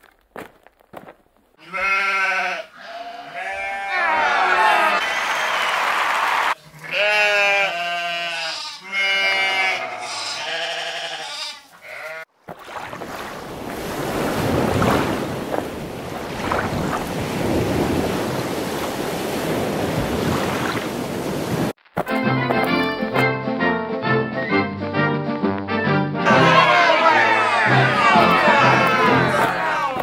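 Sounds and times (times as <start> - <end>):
sheep bleating: 1.6 - 5.0, 6.6 - 12.3
sea waves: 12.4 - 21.8, 26.3 - 30.0.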